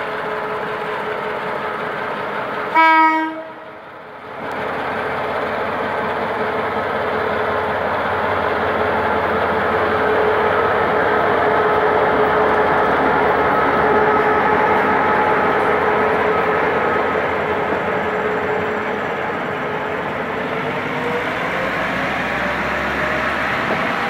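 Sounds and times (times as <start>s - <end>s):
diesel engine: 0.0s - 24.0s
train wheels on rails: 0.0s - 24.0s
locomotive horn blast: 2.7s - 3.7s.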